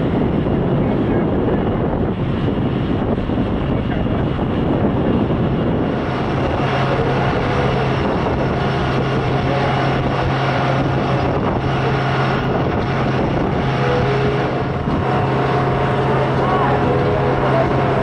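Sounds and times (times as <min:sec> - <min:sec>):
jet engines rumbling: 0:00.0 - 0:18.0.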